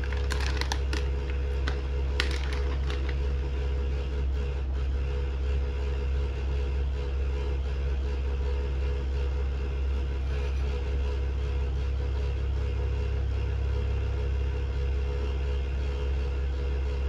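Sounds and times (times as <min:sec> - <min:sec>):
plastic pouch crinkling: 0:00.0 - 0:03.5
low mechanical hum: 0:00.0 - 0:17.0.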